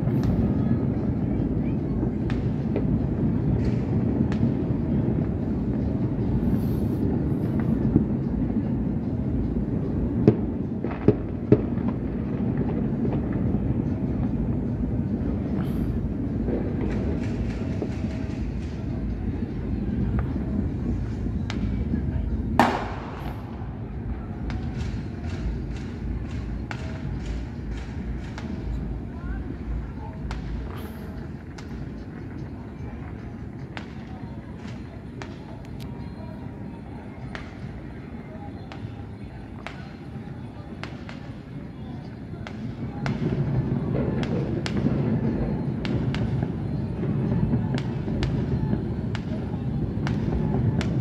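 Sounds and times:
continuous low rumble: 0.0 - 51.0
distant firecracker pops: 2.2 - 3.0, 3.6 - 4.6, 10.2 - 13.5, 15.5 - 19.0, 22.6 - 23.8, 24.4 - 32.4, 42.4 - 51.0
crackling firework bang: 22.5 - 23.8, 42.4 - 49.4.

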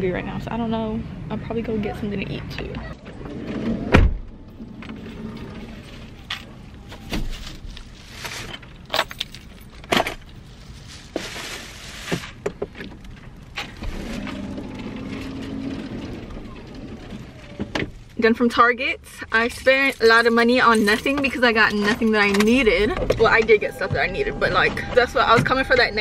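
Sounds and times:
plastic bags rustling: 5.5 - 12.4.

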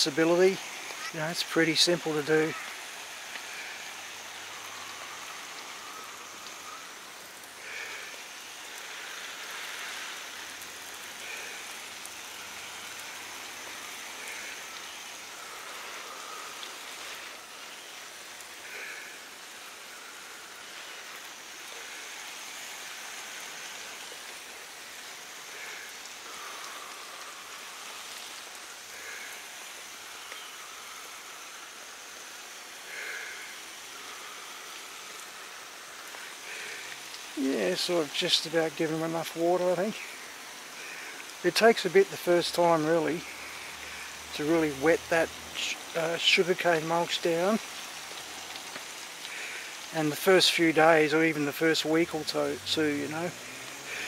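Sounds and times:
water spraying onto plants: 0.0 - 54.0.

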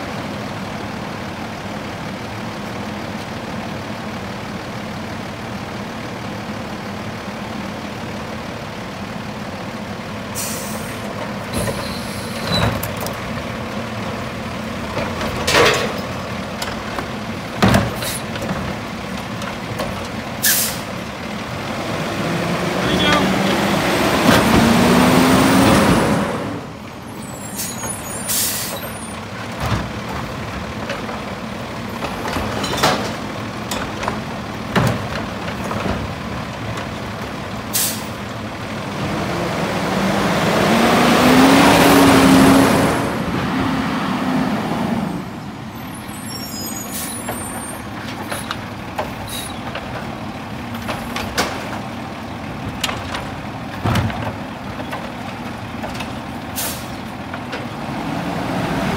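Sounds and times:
garbage truck diesel engine revving: 0.0 - 58.9
air brake hisses: 10.4 - 11.0, 20.4 - 20.9, 27.4 - 28.8, 37.7 - 38.2, 56.6 - 57.0.

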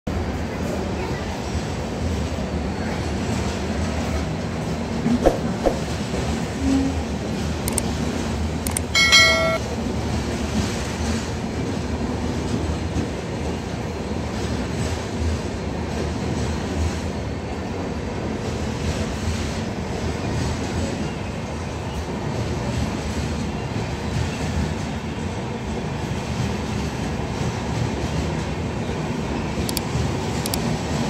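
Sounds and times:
train wheels rumbling on rails: 0.1 - 31.0
brief high tone: 9.0 - 9.6.

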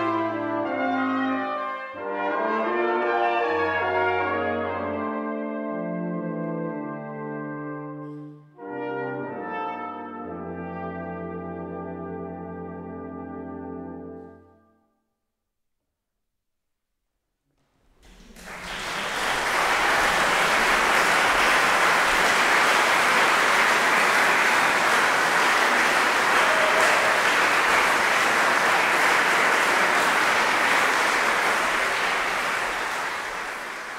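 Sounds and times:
audience applauding: 17.9 - 33.9.

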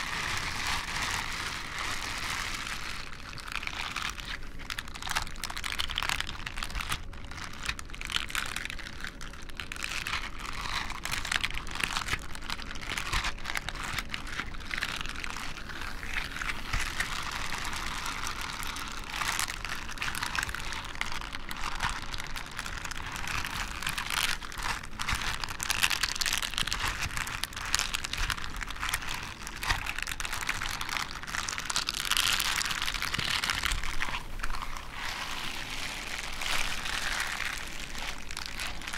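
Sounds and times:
gloves rubbing together: 27.2 - 38.9.

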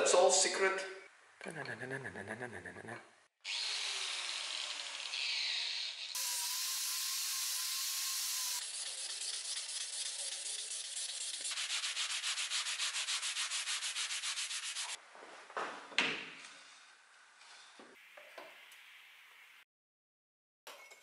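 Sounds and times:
angle grinder on steel: 3.5 - 8.8
sanding block on metal: 6.1 - 15.0.

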